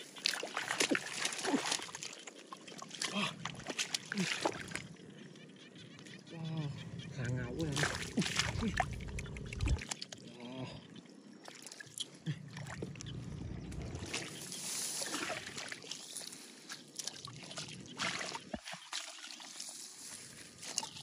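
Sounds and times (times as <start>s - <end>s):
hands splashing in muddy water: 0.2s - 2.2s, 2.8s - 4.8s, 7.7s - 10.0s, 13.8s - 19.7s.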